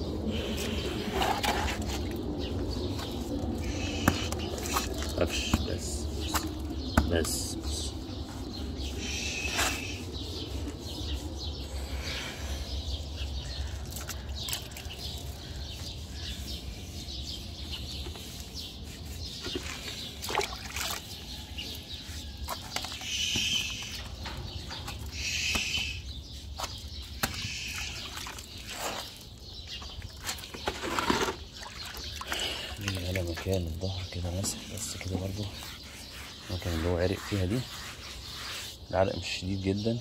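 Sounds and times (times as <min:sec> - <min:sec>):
bird chirping: 0:00.0 - 0:40.0
water splashing and dripping: 0:13.6 - 0:15.4, 0:19.4 - 0:21.7, 0:26.6 - 0:33.8.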